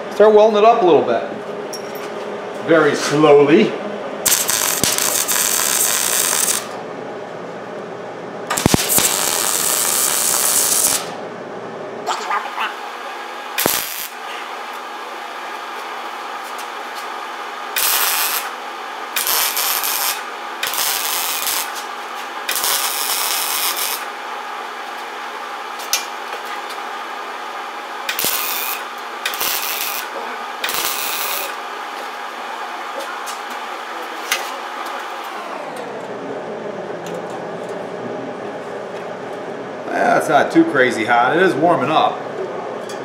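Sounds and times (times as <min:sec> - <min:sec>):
steady hum: 0:00.0 - 0:43.0
welder crackling hiss: 0:04.3 - 0:06.8, 0:08.5 - 0:11.1, 0:13.6 - 0:14.2, 0:17.8 - 0:18.5, 0:19.2 - 0:21.9, 0:22.5 - 0:24.1, 0:28.1 - 0:31.6.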